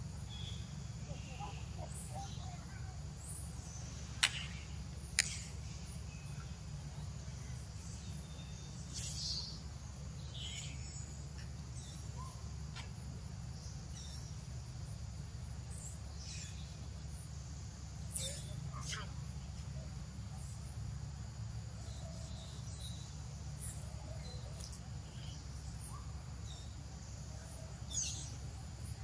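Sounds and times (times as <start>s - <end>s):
sharp click: 4.2s - 4.5s.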